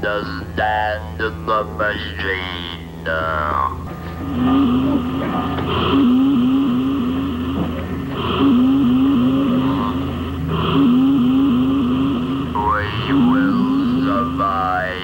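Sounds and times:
low steady hum: 0.0 - 15.0
higher electronic tone: 3.9 - 15.0
pulsing electronic warble: 4.1 - 15.0.

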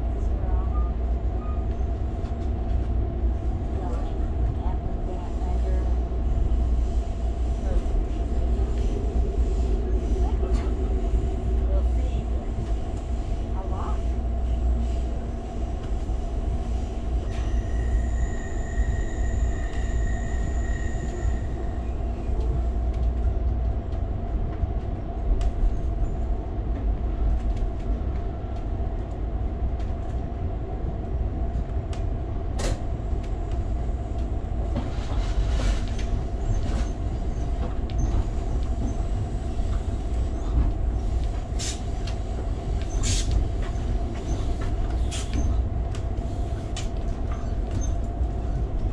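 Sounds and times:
constant hum: 0.0 - 18.1
train running rumble: 0.0 - 48.9.

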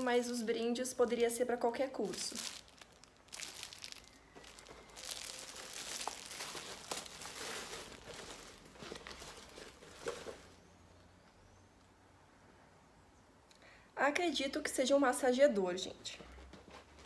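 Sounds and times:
plastic wrapping crinkling: 0.0 - 10.6.

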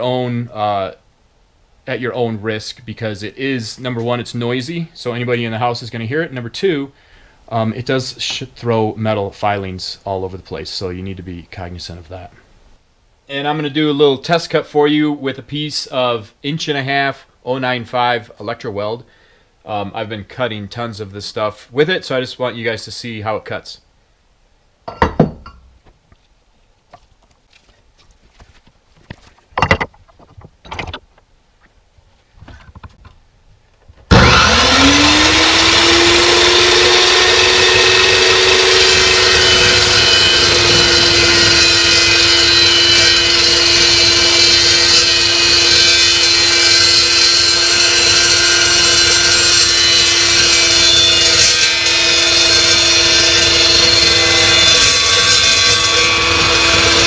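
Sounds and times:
chop saw cutting metal: 34.1 - 57.0.

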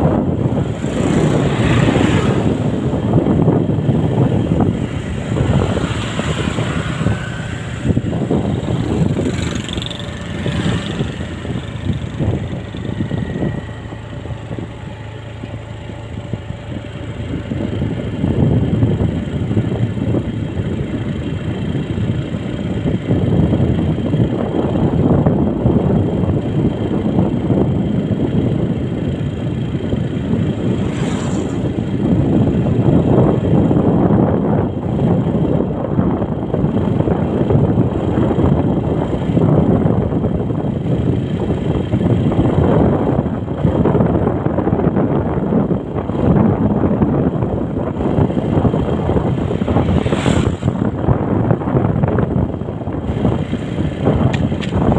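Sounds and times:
motorbike passing: 0.0 - 22.2, 29.4 - 36.2, 42.0 - 54.9
vehicle engine running: 0.0 - 54.9
wind buffeting microphone: 0.0 - 54.9.

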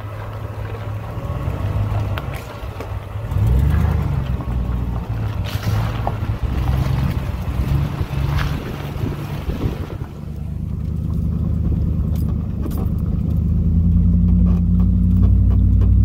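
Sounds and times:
tyres crunching over stones: 0.0 - 15.8
truck engine running: 0.0 - 16.0
tyres splashing through puddles: 0.0 - 16.0.

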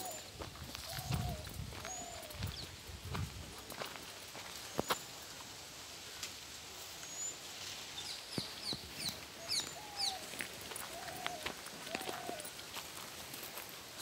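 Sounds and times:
birds chirping: 0.0 - 2.8, 7.0 - 12.7.

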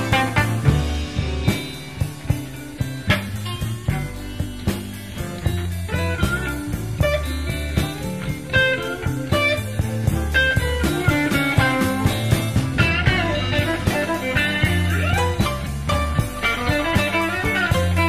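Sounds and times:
electric guitar lines: 0.0 - 18.0
steady bass: 0.0 - 18.0.

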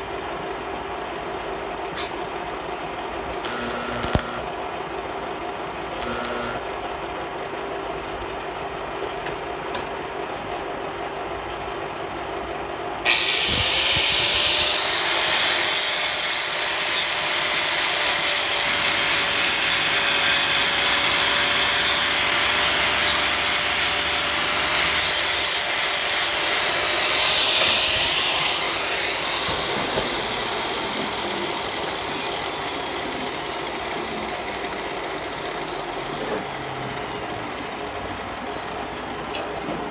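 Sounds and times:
steady background hum: 0.0 - 39.9
angle grinder grinding steel: 3.4 - 4.5, 6.0 - 6.6, 13.1 - 37.7.

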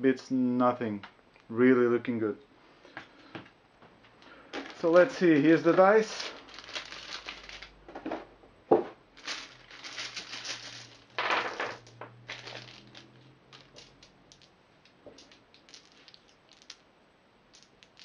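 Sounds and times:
plastic bag crinkling: 4.6 - 7.9, 9.2 - 16.8
dice clicking: 12.9 - 16.8, 17.5 - 18.0.

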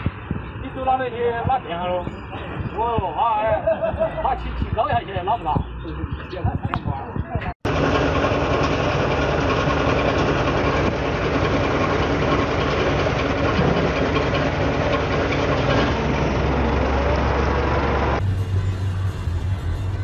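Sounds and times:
diesel engine idling: 7.7 - 20.0
engine low hum: 7.7 - 20.0.

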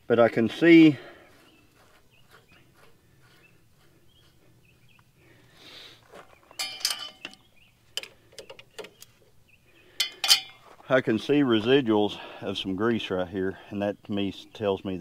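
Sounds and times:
tools clicking and tapping: 6.6 - 9.2, 10.0 - 10.6.

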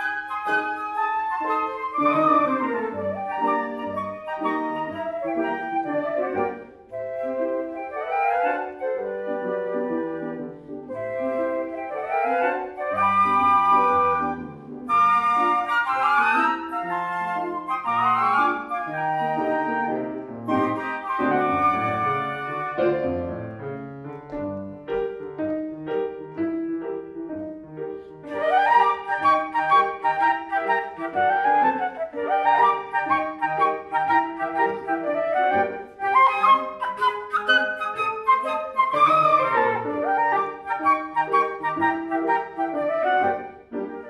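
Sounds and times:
flutes playing: 0.0 - 23.7, 28.2 - 44.0
grand piano accompaniment: 0.0 - 44.0.

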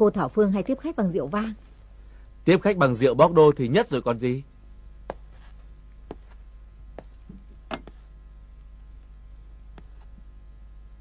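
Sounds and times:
steady low hum: 0.0 - 11.0
wine glass ringing clink: 7.7 - 7.9.

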